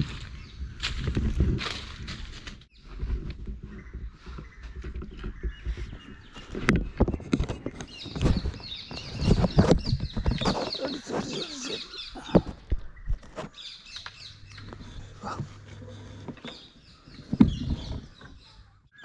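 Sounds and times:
birds chirping: 0:00.0 - 0:02.1, 0:02.7 - 0:19.0
rustling in dry leaves: 0:00.0 - 0:05.0.

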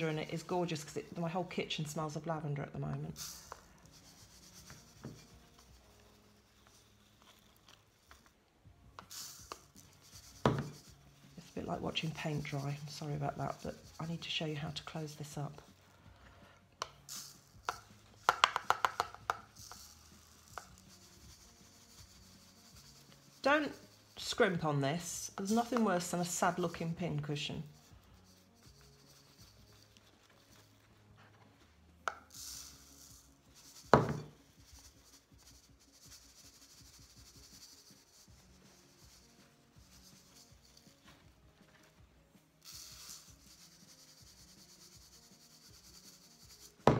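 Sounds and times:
shells pouring hiss: 0:03.2 - 0:05.0, 0:09.0 - 0:10.8, 0:16.8 - 0:24.2, 0:32.1 - 0:41.1, 0:42.6 - 0:46.9
shells tapping and rattling: 0:16.8 - 0:20.9, 0:32.1 - 0:34.8.

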